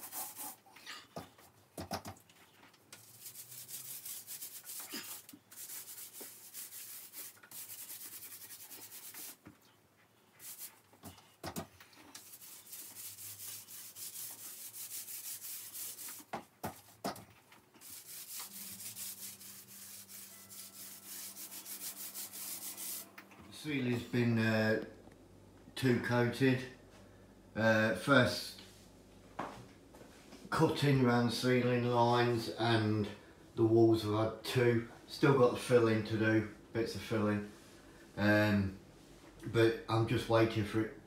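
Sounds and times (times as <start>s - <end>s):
paint roller swishing on wall: 0.0s - 9.7s, 10.3s - 23.4s.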